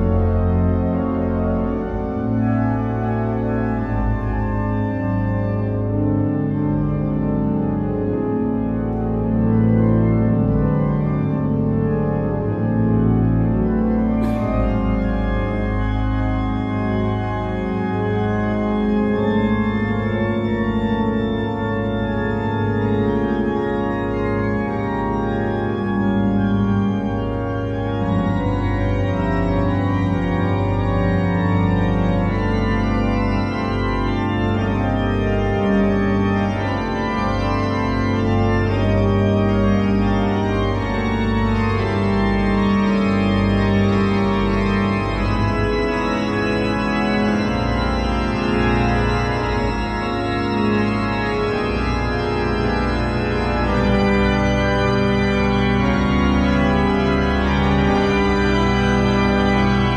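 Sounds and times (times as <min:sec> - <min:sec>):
pipe organ chords: 0:00.0 - 0:59.9.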